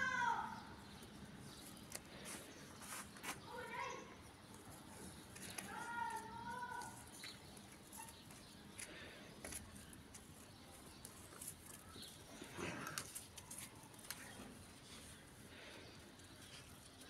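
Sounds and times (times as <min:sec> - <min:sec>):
puppies play-fighting: 0:06.8 - 0:17.0.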